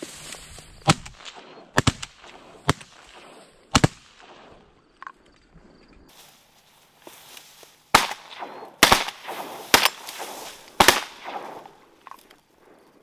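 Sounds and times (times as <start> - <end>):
shotgun shots: 0.8 - 4.7, 7.9 - 12.0.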